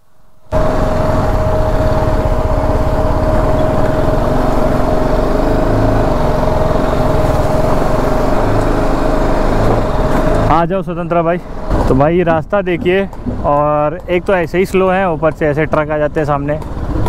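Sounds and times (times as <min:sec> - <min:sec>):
steady whining tone: 0:00.4 - 0:15.5
motorcycle engine idling: 0:00.5 - 0:11.8.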